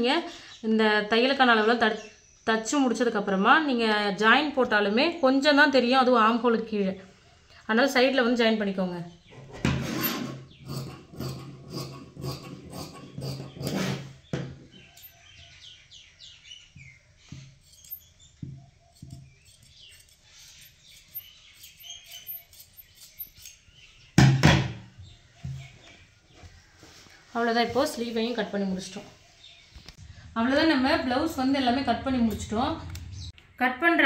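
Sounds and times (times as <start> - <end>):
faint bird chirps: 14.7 - 24.2
loud knock: 24.2 - 24.9.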